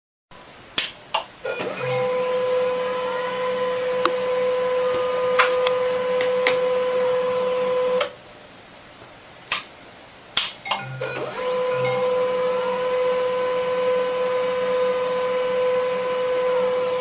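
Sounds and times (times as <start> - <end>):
printer motor whine: 1.4 - 8.2, 10.7 - 17.0.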